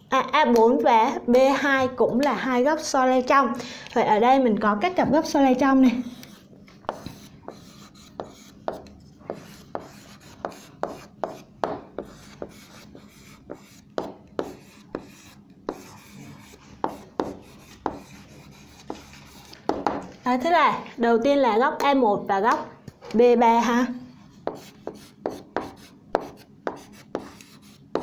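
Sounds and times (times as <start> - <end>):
pen scratching on hard surface: 6.0 - 19.8, 24.4 - 28.0
pen tapping: 6.2 - 12.7, 18.7 - 20.1.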